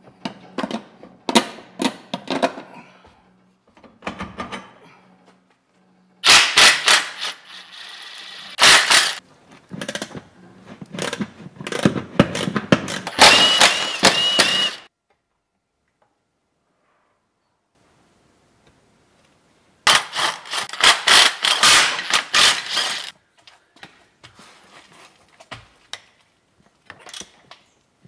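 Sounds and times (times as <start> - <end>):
impact wrench rattling: 6.2 - 9.2, 11.0 - 14.8, 19.9 - 23.1.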